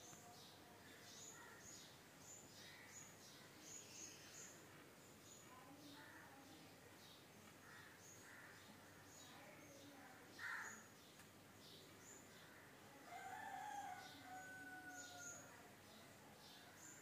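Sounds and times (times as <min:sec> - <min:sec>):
small birds chirping: 0:00.0 - 0:17.0
rooster crowing: 0:13.1 - 0:15.5.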